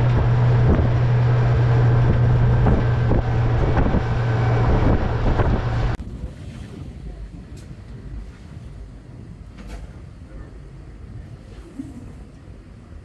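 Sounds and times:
outboard motor running: 0.0 - 6.0
wind noise on microphone: 0.0 - 13.0.

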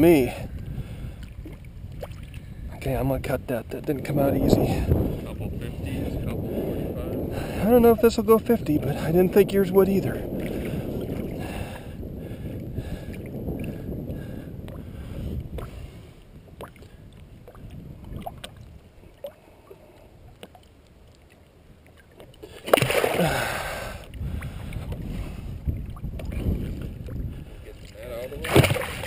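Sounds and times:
water sloshing: 1.2 - 2.5, 16.4 - 29.0
fish splashing in net: 22.6 - 23.3, 28.4 - 29.0.

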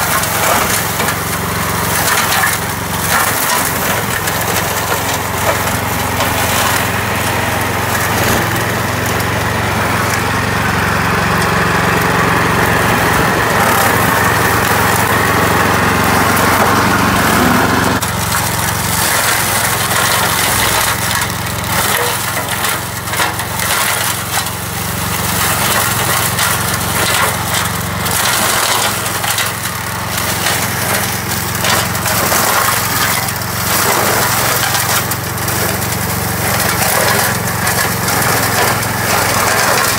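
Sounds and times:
stems crackling and snapping: 0.0 - 10.4, 11.3 - 39.9
cutter shredding brush: 0.0 - 39.9
small mower engine running: 0.0 - 39.9.

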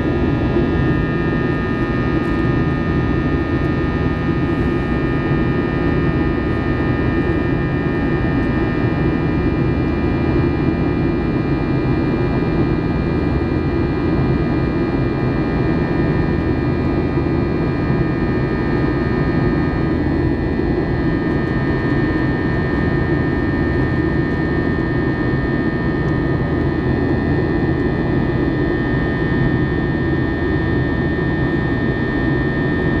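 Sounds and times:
jet engines deep rush: 0.0 - 33.0.

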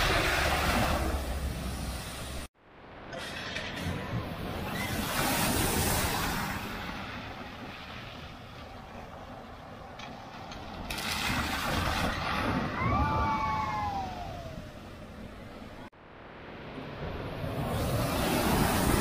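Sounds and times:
tyres splashing through water: 3.7 - 14.2.

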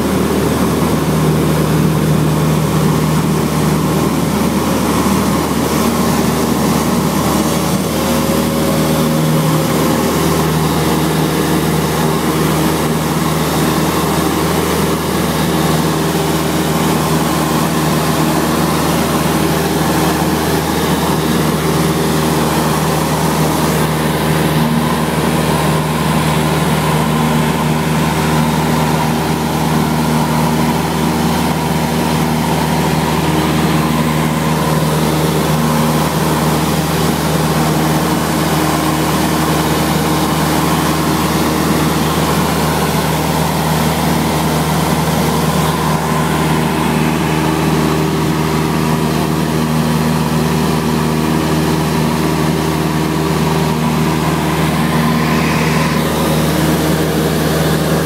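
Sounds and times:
aircraft engine and propeller drone: 0.0 - 58.0.

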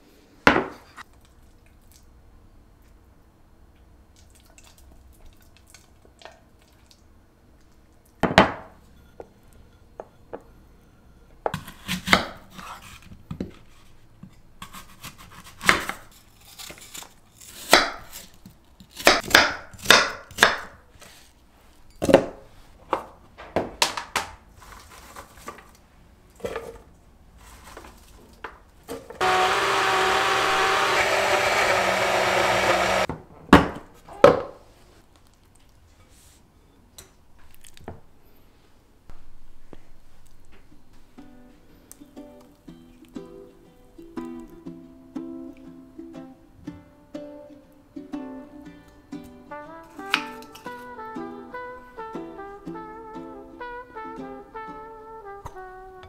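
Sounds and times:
electric kitchen appliance running: 29.2 - 33.1.

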